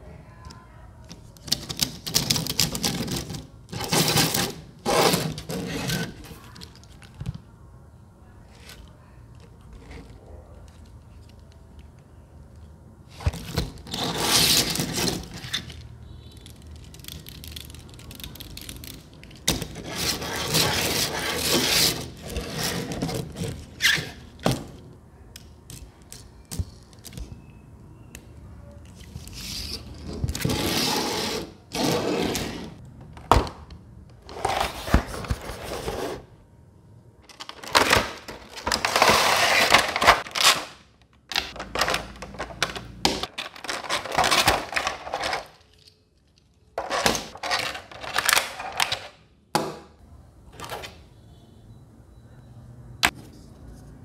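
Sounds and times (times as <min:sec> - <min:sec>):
cardboard box rustling and scraping: 0:34.2 - 0:36.3, 0:38.6 - 0:40.2.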